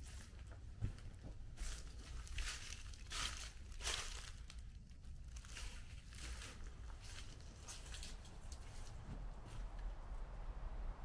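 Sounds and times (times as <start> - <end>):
footsteps crunching on dry leaves: 1.5 - 4.6, 5.3 - 9.6.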